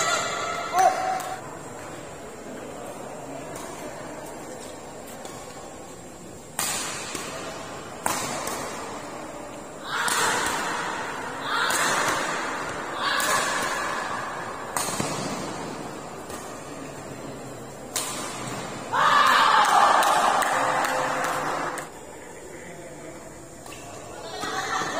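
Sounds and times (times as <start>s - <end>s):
rackets hitting shuttlecock: 3.4s - 21.9s.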